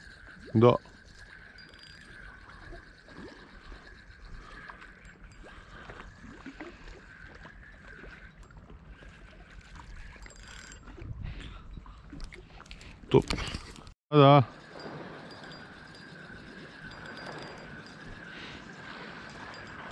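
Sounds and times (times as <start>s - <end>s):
faint ticks: 15.4s - 19.9s.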